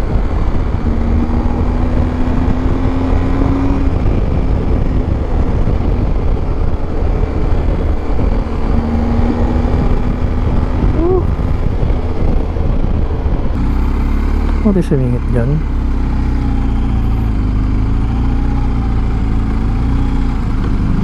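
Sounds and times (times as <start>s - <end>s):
wind rushing over microphone: 0.0s - 13.7s.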